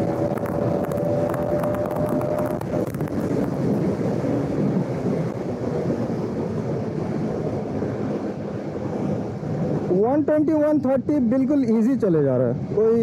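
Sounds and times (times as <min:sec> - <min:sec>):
motorcycle engine cruising: 0:00.0 - 0:05.7
wind buffeting microphone: 0:00.0 - 0:13.0.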